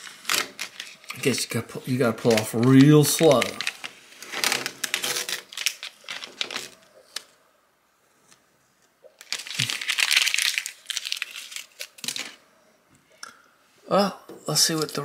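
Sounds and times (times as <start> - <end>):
thin sheet crinkling and rustling: 0.0 - 7.4, 9.1 - 12.4.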